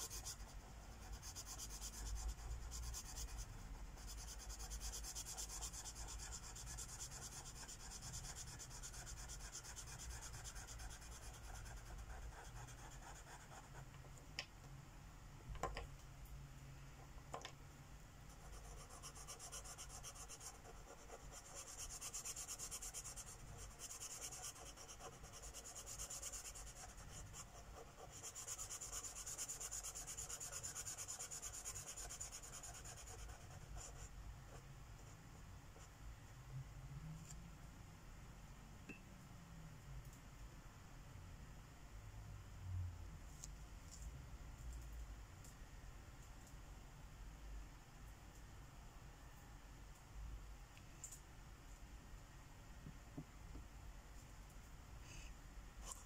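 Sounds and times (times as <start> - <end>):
marker scratching on paper: 0.0 - 13.8, 18.4 - 34.1.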